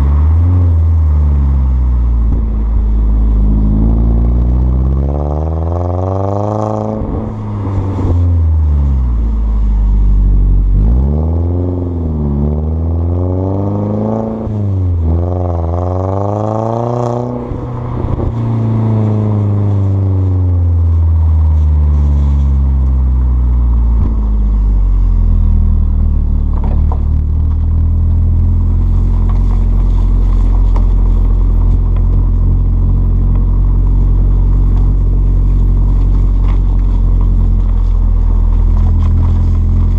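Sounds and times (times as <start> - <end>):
car engine exhaust note: 0.0 - 39.9.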